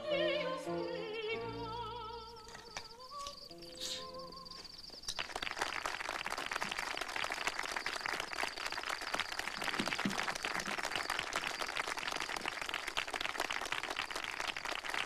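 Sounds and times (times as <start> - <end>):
soprano singing with orchestra: 0.0 - 4.8
crowd applauding: 4.5 - 15.0.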